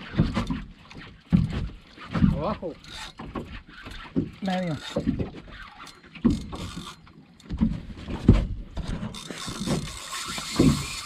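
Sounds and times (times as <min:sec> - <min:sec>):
wind: 0:00.0 - 0:11.0.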